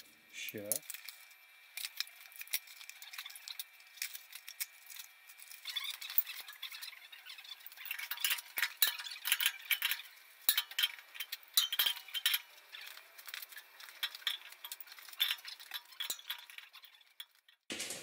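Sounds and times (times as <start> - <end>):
wrench clinking against metal valve: 7.8 - 17.4.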